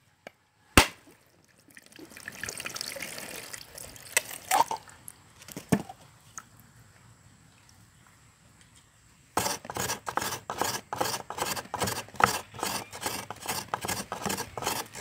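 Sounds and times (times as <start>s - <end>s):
coconut water pouring into bowl: 1.7s - 4.9s.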